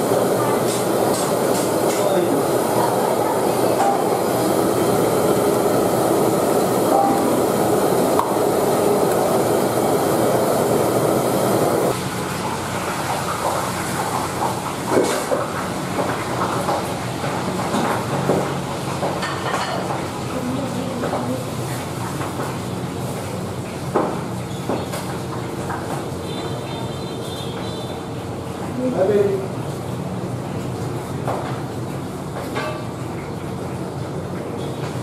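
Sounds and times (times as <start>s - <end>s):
gas burner rushing: 0.0s - 20.5s.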